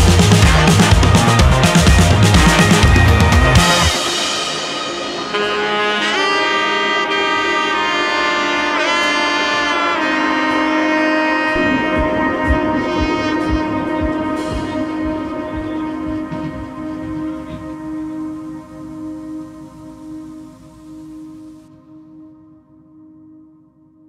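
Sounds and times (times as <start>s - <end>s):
low steady beat: 0.0s - 4.5s, 11.5s - 21.7s
slow melody of held notes: 5.3s - 24.0s.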